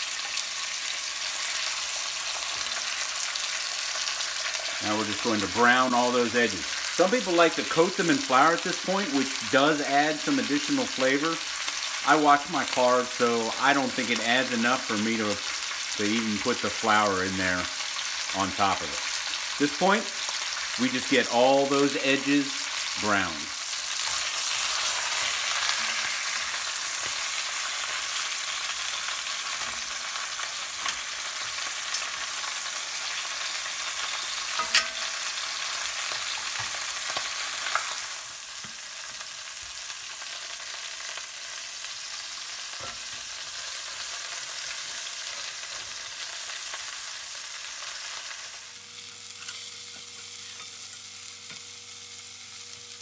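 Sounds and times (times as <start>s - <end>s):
meat sizzling in hot oil: 0.0s - 53.0s
metal tongs clicking on pot: 34.6s - 35.1s.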